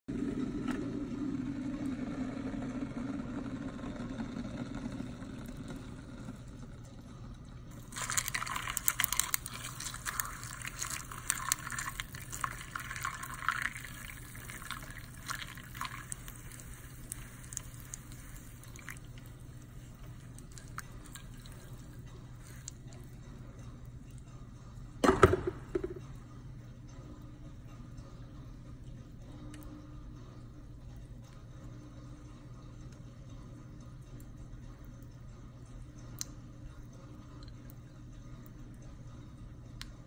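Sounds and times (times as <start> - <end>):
water pouring and splashing: 7.7 - 22.7
ice cracking and popping: 7.8 - 19.1.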